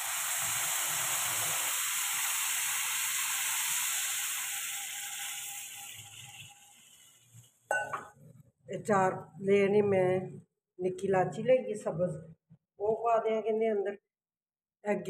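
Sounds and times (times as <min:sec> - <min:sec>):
water sizzling in hot fat: 0:00.0 - 0:07.7.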